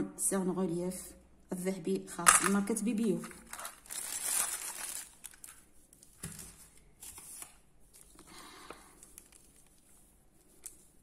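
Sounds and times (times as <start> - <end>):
faint rustling of packaging: 2.7 - 11.0.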